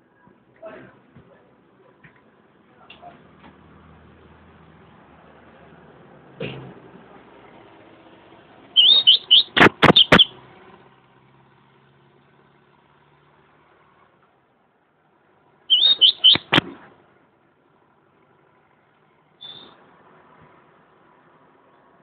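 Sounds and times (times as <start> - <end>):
bird singing whistled notes: 8.8 - 10.3, 15.7 - 16.6, 19.4 - 19.8
sharp bird clicks: 8.8 - 10.3, 15.7 - 16.7.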